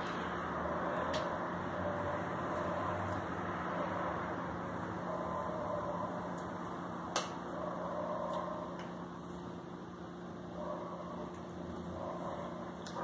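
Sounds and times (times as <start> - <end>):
faint constant hum: 0.0 - 13.0.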